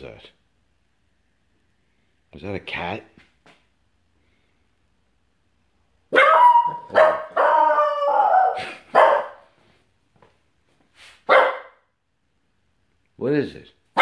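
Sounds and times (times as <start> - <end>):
small dog barking: 6.1 - 9.5, 11.3 - 11.8.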